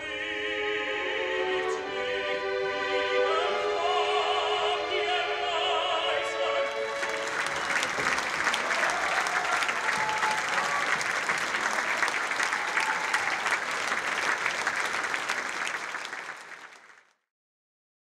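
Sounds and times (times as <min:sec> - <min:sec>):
audience applauding: 0:06.7 - 0:17.2.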